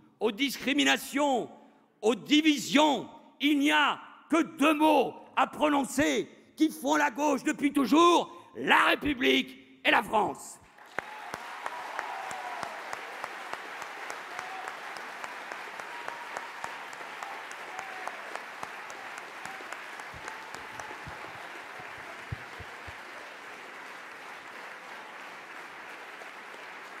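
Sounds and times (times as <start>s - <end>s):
audience applauding: 10.7s - 27.0s.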